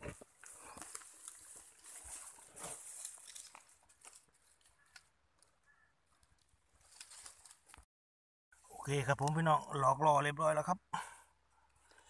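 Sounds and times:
rustling through grass: 0.0 - 5.1, 6.8 - 7.8.

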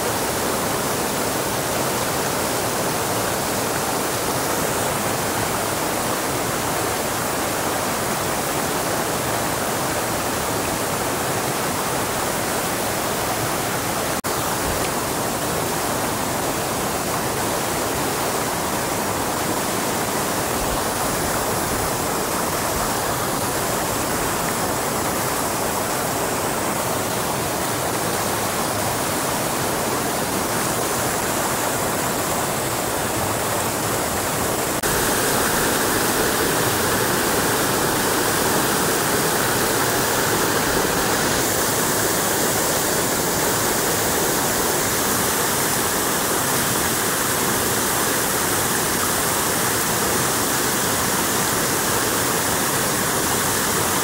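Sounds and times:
rushing water hiss: 0.0 - 54.0.

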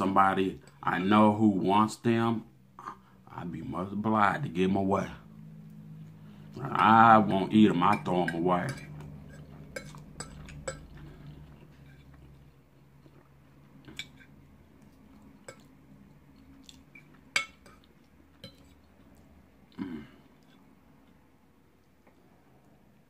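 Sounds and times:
fork scraping plate: 7.5 - 12.5, 16.8 - 18.8
quiet chewing: 8.9 - 22.8.

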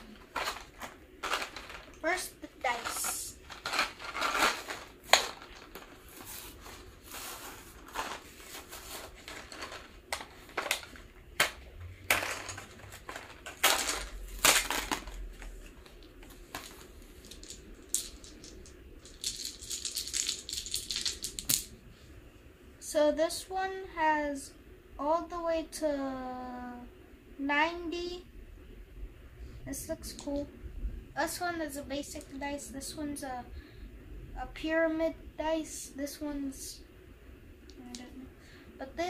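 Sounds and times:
plastic packaging crackling: 0.0 - 21.6
plastic dice clicking: 16.6 - 21.7.

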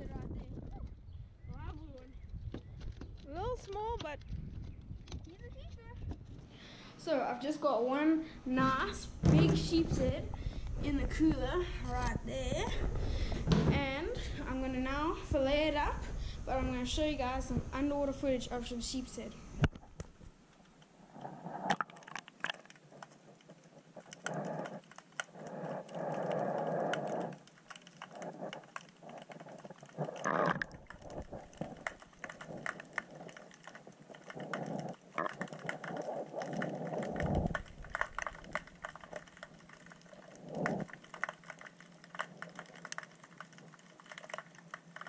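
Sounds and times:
underwater crackling clicks: 0.2 - 6.4, 19.6 - 45.0.

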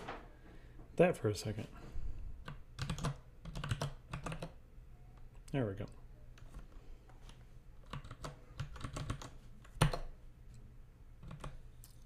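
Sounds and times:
computer keyboard typing: 2.4 - 4.6, 7.8 - 10.1, 11.2 - 11.6.

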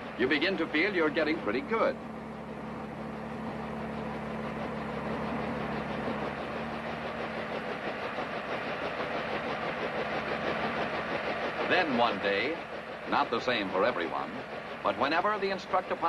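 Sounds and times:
helicopter engine and rotor: 0.0 - 16.0.

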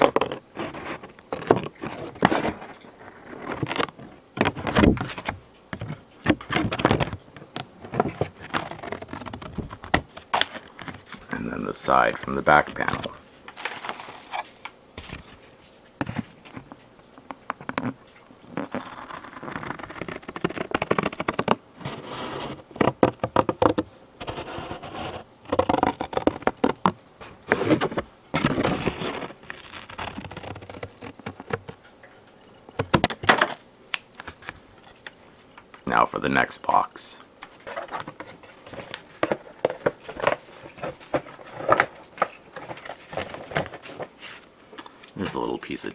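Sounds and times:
cardboard tearing: 0.0 - 5.2, 7.9 - 11.2, 12.5 - 15.3, 17.7 - 26.9, 27.5 - 31.8, 37.6 - 44.2
cardboard crackles and taps: 0.0 - 11.3, 12.0 - 15.4, 16.0 - 31.8, 32.7 - 33.6, 37.4 - 44.2.

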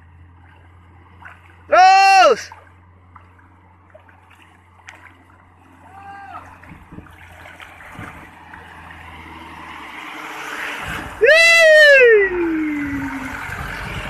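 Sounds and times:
truck engine drone: 0.0 - 14.0
water rushing and splashing: 0.0 - 14.0.

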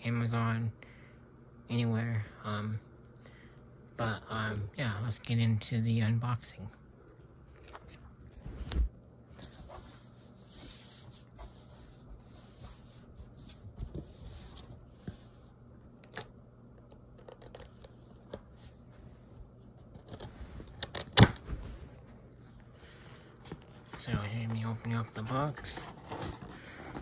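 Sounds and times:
handling rustling and scraping: 23.3 - 27.0.

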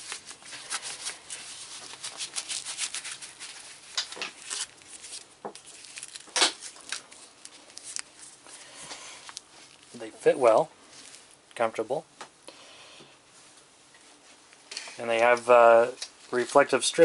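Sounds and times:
fabric glove rustling: 0.0 - 11.5.

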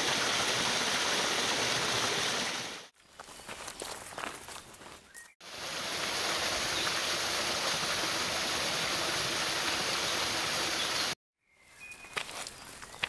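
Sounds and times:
waterfall rushing over rocks: 0.0 - 2.9, 5.5 - 11.2.

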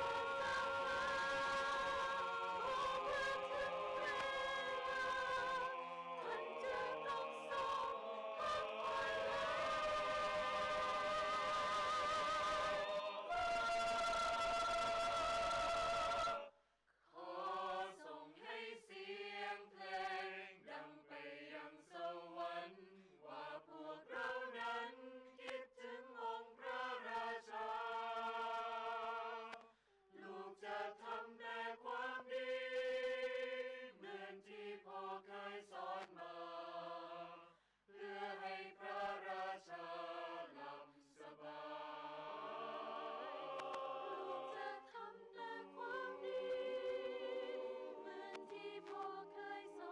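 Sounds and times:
mixed choir singing: 0.0 - 16.5, 17.2 - 29.6, 30.2 - 49.9.

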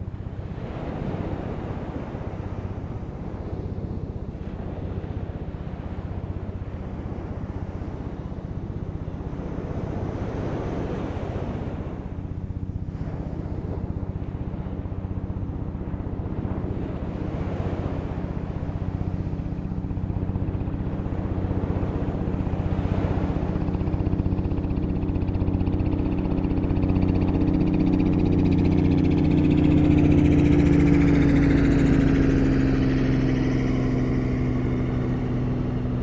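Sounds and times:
motor engine passing by: 0.0 - 36.0.

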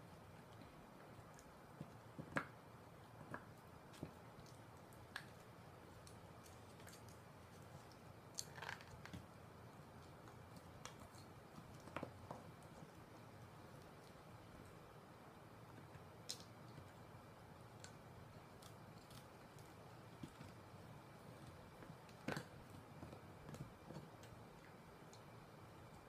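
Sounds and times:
dog teeth crunching bone: 3.2 - 9.3, 17.8 - 20.6.

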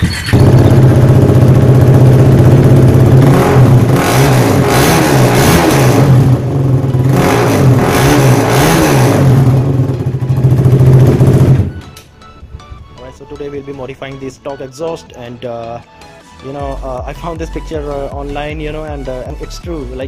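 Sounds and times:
motorcycle engine revving: 0.0 - 11.8.

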